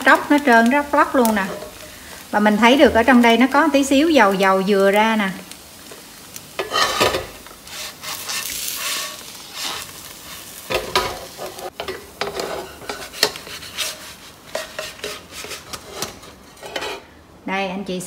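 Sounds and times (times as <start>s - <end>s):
crepe sizzling in a wok: 0.0s - 17.2s
spatula scraping a wok: 5.8s - 17.2s.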